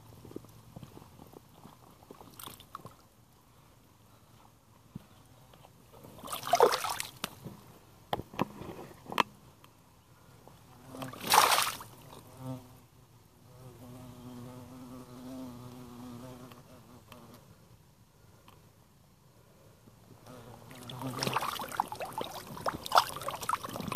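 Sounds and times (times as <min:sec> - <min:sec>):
mud squelching under waders: 0:06.2 - 0:07.3, 0:11.0 - 0:12.0, 0:20.7 - 0:23.9
fly buzzing: 0:10.8 - 0:12.8, 0:13.4 - 0:17.5, 0:20.2 - 0:23.9.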